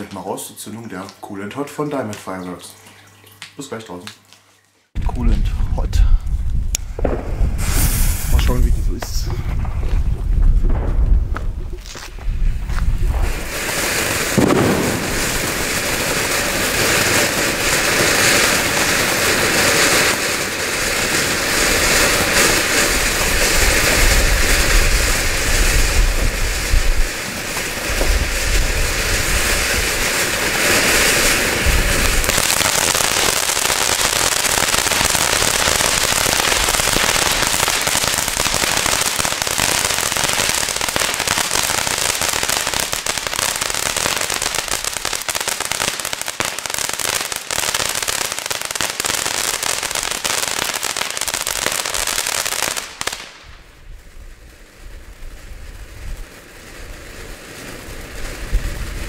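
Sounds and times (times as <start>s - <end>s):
ground fountain firework hissing: 6.9s - 9.3s, 12.3s - 59.0s.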